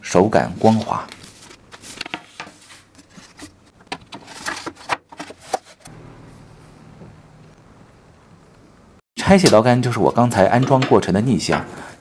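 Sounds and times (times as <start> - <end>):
wooden pieces knocking and scraping: 2.0 - 5.8
steady low hum: 5.9 - 9.0.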